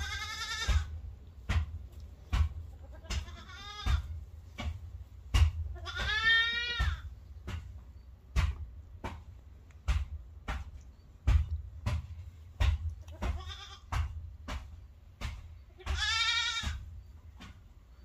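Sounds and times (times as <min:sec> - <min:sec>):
goat kids bleating: 0:00.0 - 0:01.0, 0:02.7 - 0:04.2, 0:05.7 - 0:07.2, 0:13.0 - 0:14.2, 0:15.6 - 0:16.9
short sharp knocks: 0:00.5 - 0:17.8.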